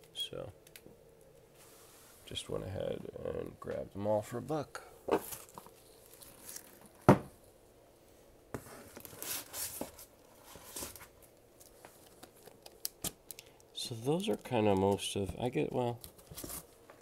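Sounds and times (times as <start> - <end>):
plastic sleeves rustling: 5.1 - 7.1, 8.6 - 17.0
comic book stack thump: 7.0 - 7.3.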